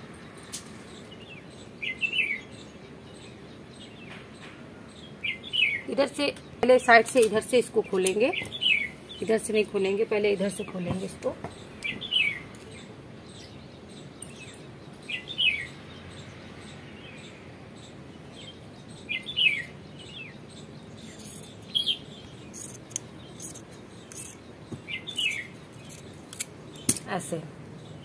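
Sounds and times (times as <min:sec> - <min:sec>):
bird chirping: 0:00.0 - 0:28.0
scissors clicking: 0:22.6 - 0:24.4.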